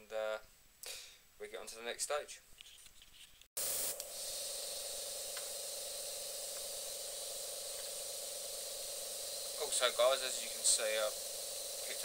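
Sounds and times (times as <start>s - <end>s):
airbrush spraying: 3.6s - 12.0s
steady hum: 3.6s - 12.0s.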